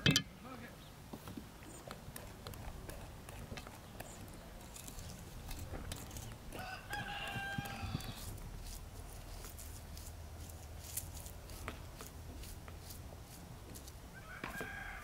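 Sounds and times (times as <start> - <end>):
rooster crowing: 6.5 - 8.3, 14.2 - 15.0.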